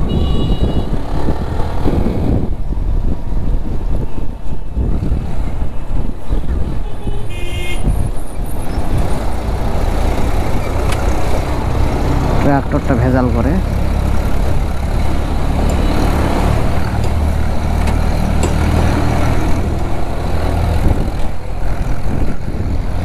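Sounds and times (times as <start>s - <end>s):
vehicle horn toot: 0.0s - 1.0s, 6.8s - 8.0s
motorcycle engine rumble: 0.0s - 23.0s
road and wind noise: 0.0s - 23.0s.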